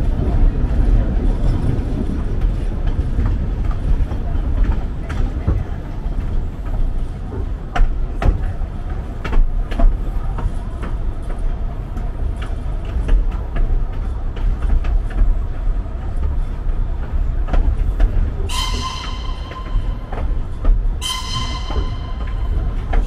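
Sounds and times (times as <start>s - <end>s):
train rumbling: 0.0s - 23.0s
wheels clanking on track: 0.0s - 23.0s.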